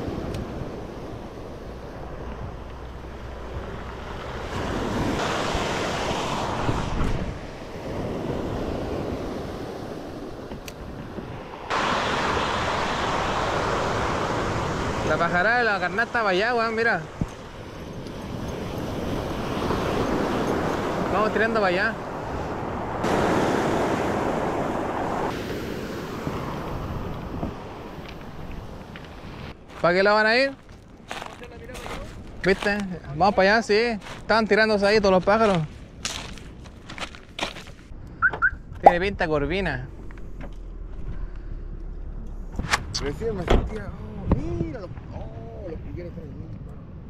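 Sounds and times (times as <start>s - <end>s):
wind on microphone: 0.0s - 15.2s, 17.0s - 29.6s
surf breaking on shingle beach: 3.7s - 10.5s, 11.6s - 17.7s, 18.3s - 30.4s.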